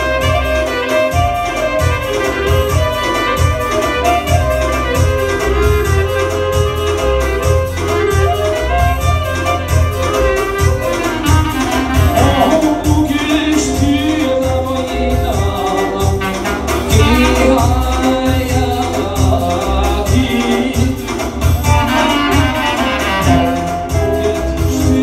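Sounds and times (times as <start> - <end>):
electronic keyboard melody with beat: 0.0 - 25.0
man singing through a microphone: 12.0 - 25.0.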